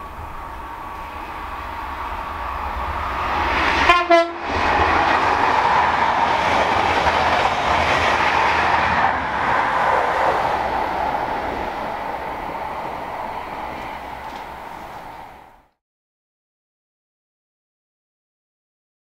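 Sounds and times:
train passing at speed: 0.0s - 15.8s
train horn blast: 3.8s - 4.5s.

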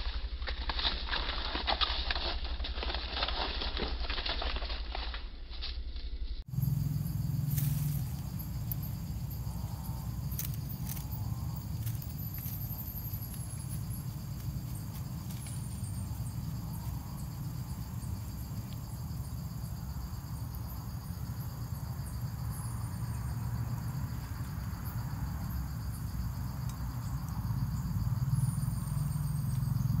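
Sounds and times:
insect chirring: 0.1s - 30.0s.

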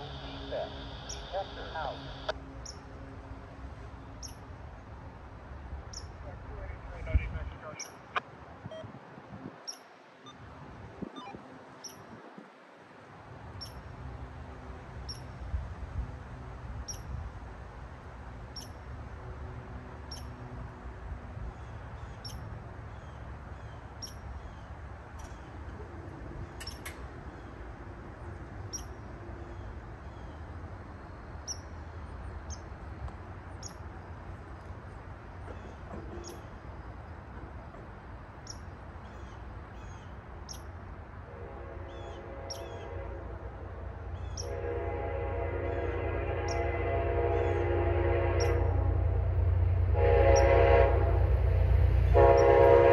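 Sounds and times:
small bird chirping: 4.2s - 4.4s, 38.4s - 40.7s.

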